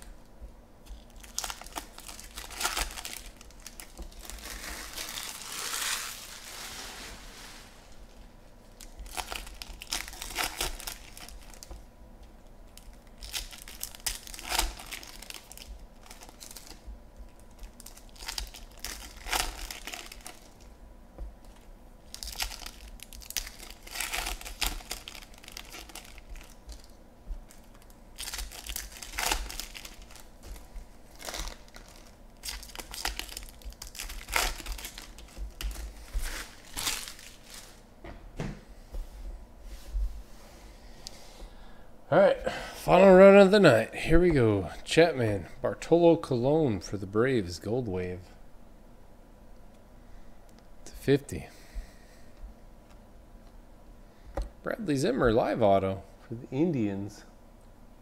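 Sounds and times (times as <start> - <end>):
foil wrappers crinkling and tearing: 0.9 - 7.2, 8.8 - 11.8, 12.7 - 20.7, 21.4 - 37.8.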